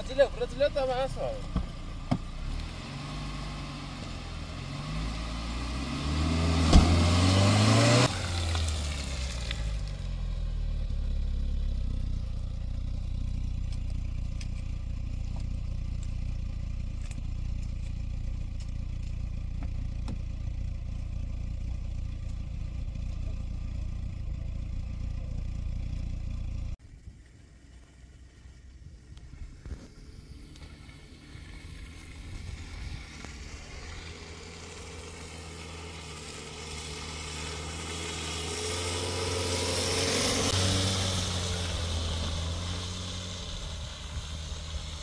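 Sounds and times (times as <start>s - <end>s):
car engine revving: 0.0s - 26.8s, 29.8s - 45.0s.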